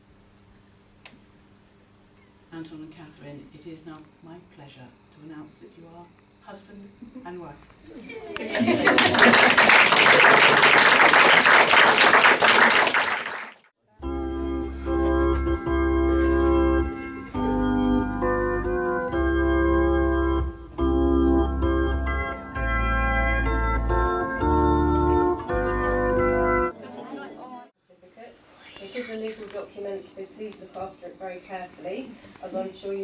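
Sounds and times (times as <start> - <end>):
guests applauding: 8.5 - 13.7
organ music with sustained chords: 14.0 - 27.6.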